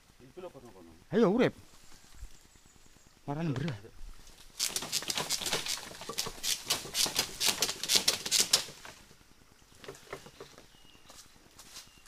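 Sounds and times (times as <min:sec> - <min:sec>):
crackling and clicking: 0:03.4 - 0:10.6.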